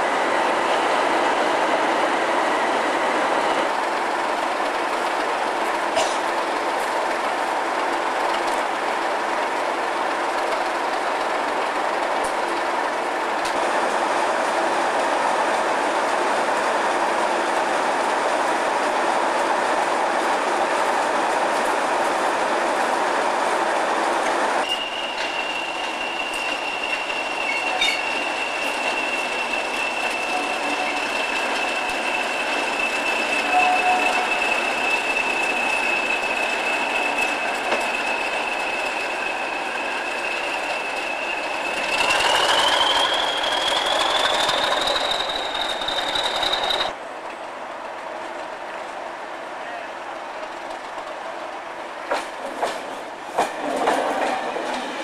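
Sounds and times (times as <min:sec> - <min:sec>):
turbocharger whistle: 0:40.4 - 0:46.9.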